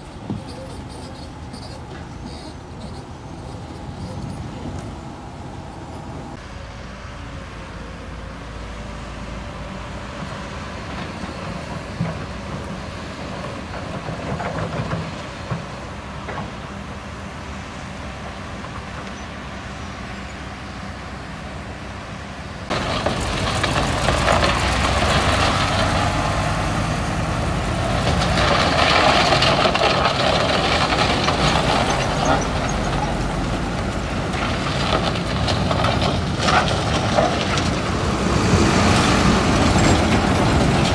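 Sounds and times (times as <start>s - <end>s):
diesel engine rumble: 0.0s - 40.9s.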